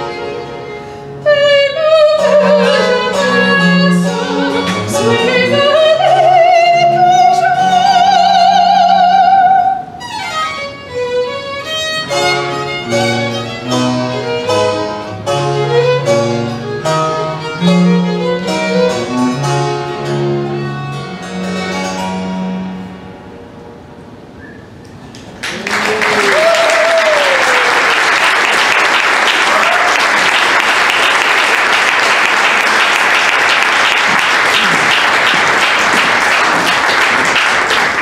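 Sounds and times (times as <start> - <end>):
baroque violin and continuo: 0.0 - 23.0
audience applause: 25.2 - 38.0
crowd shouts: 29.4 - 30.1.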